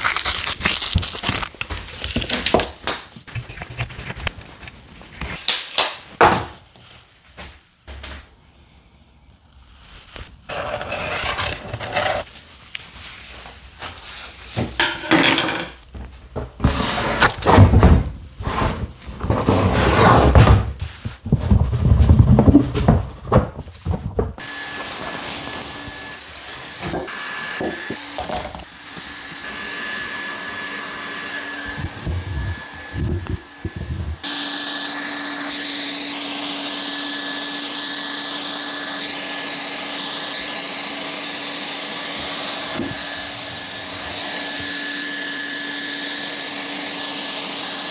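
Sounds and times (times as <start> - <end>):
scraping and knocking: 10.5 - 12.3, 16.4 - 24.4.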